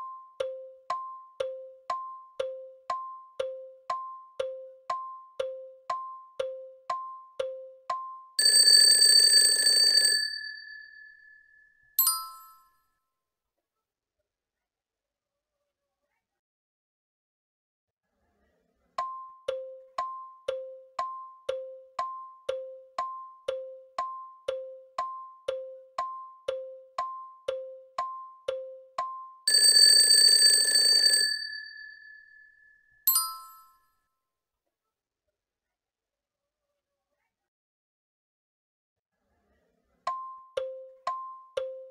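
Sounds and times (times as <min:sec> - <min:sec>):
countdown timer ticks: 0:00.0 - 0:09.2, 0:19.0 - 0:30.4, 0:40.1 - 0:41.9
alarm clock bell ringing: 0:08.4 - 0:12.7, 0:29.2 - 0:33.8
bright chime: 0:10.6 - 0:12.7.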